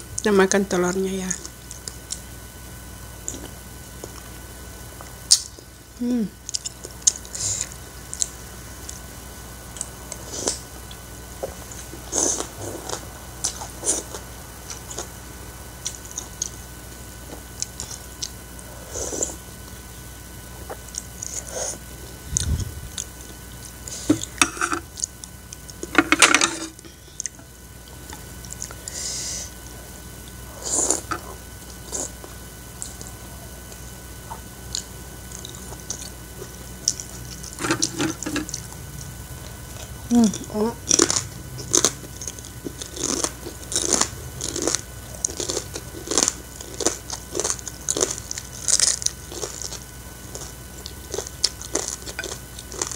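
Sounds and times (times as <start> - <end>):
person chewing and lip smacking: 1.4 - 2.3, 6.4 - 9.0, 20.6 - 25.9, 26.7 - 29.0, 30.2 - 52.9.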